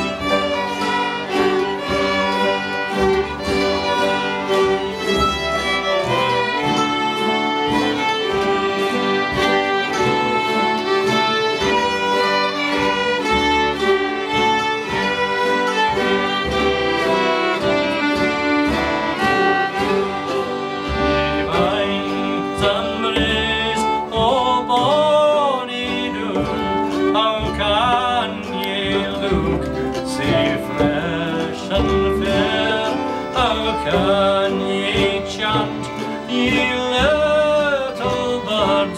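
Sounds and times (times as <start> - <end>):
acoustic guitar: 0.0 - 38.9
fiddles playing folk tune: 0.0 - 38.9
mandolin: 0.0 - 38.9
man singing: 21.2 - 38.9.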